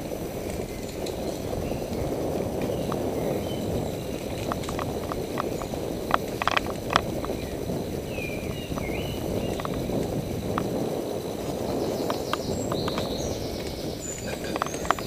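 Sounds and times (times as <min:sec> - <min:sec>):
low rumble of bicycle ride: 0:00.0 - 0:15.0
camera rattling in bicycle mount: 0:03.7 - 0:07.6, 0:08.4 - 0:10.8, 0:12.0 - 0:15.0.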